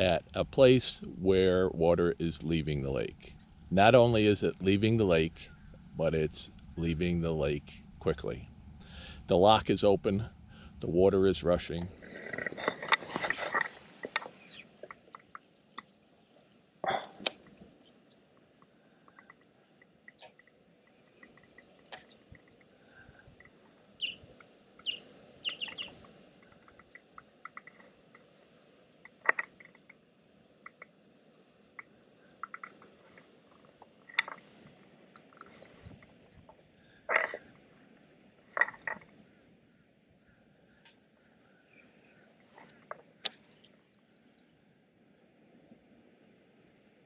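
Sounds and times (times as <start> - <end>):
faint rush of water: 0.0 - 47.0
bird chirps: 14.1 - 15.9, 24.0 - 24.2, 24.8 - 27.8.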